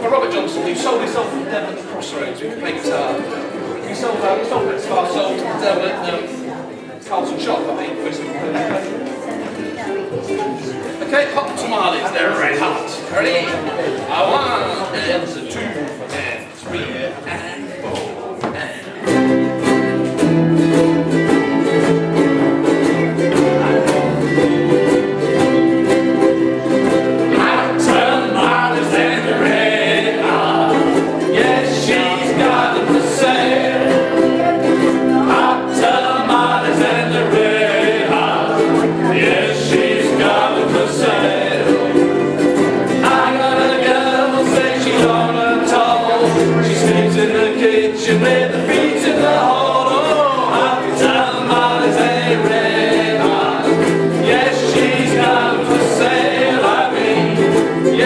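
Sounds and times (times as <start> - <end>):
ukulele ensemble strumming: 0.0 - 58.0
voices singing in unison: 19.6 - 58.0.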